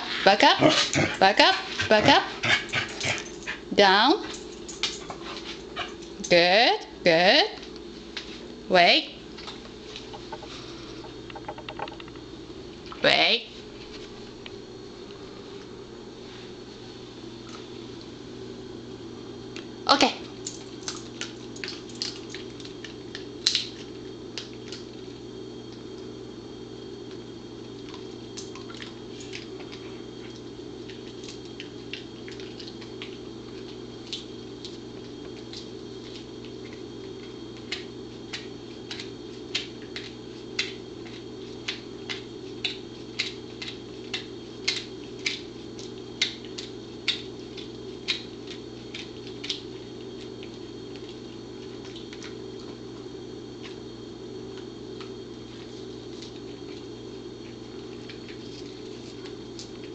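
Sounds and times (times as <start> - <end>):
dog chewing with crunching clicks: 20.4 - 25.0, 27.0 - 53.8, 54.5 - 59.9.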